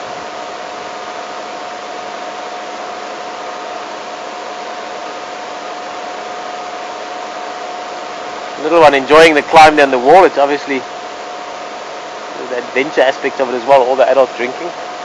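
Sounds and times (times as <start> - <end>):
faint high hum: 0.0 - 15.0.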